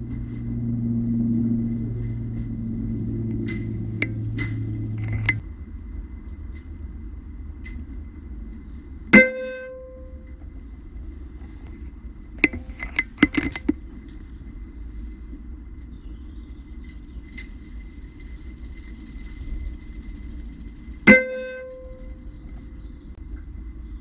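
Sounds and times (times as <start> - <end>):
sharp metallic clicks: 3.2 - 5.4.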